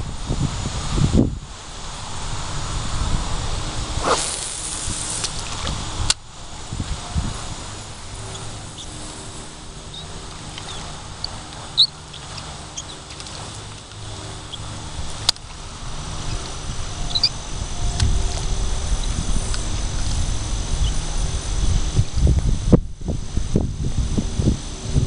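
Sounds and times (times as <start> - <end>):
wind rumble on microphone: 0.0 - 25.0
high bird chirps: 9.8 - 13.2, 17.1 - 17.3.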